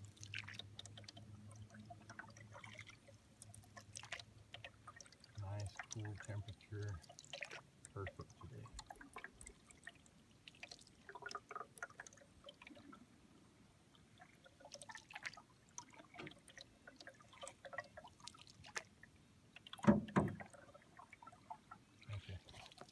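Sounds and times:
water dripping off paddle: 0.0 - 13.0, 13.9 - 22.9
paddle strokes in water: 14.0 - 22.9.

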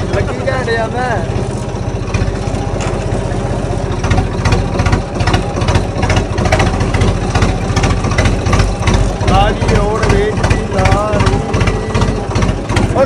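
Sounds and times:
tractor engine running: 0.0 - 13.0
sharp repeating clatter: 4.0 - 13.0.

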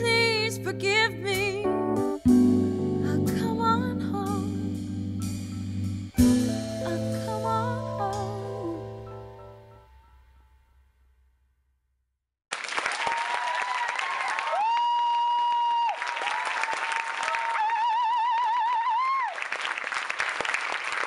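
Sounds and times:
audience applauding: 12.5 - 21.0.

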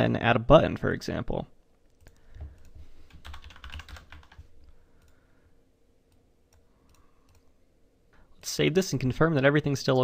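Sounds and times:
typing on computer keyboard: 1.9 - 5.2.

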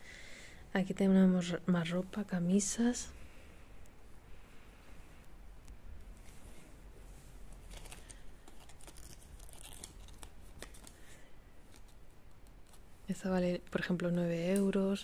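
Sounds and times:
fabric rustling: 5.9 - 13.2.

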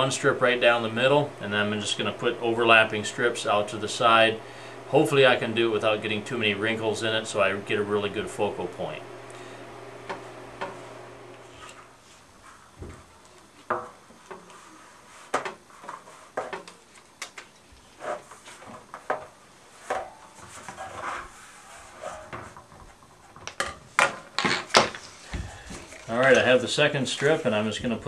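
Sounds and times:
tape rubbed by hand: 14.3 - 16.6, 19.7 - 22.6.

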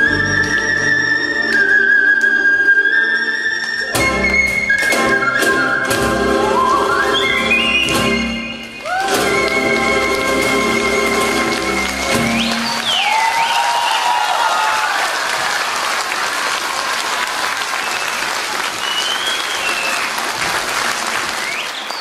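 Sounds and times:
audience applause: 6.4 - 22.0
audience cheering: 7.9 - 22.0.

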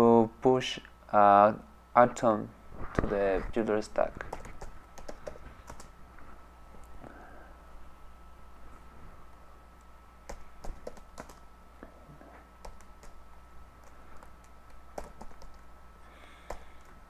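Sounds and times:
faint steady hum: 0.0 - 17.0
computer keyboard typing: 4.2 - 5.9, 10.2 - 11.4, 12.6 - 13.2, 13.8 - 15.7, 16.4 - 16.9.

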